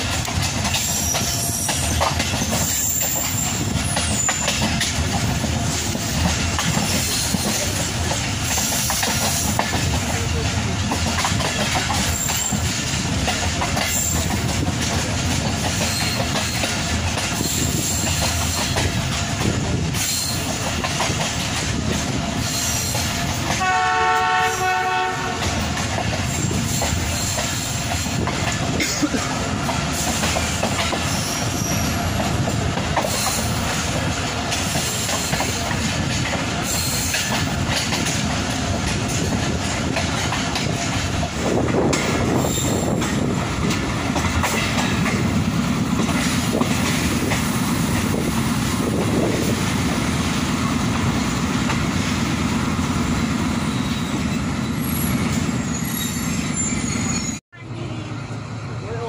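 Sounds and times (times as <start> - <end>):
train rumbling on track: 0.0 - 59.0
locomotive horn: 23.5 - 25.6.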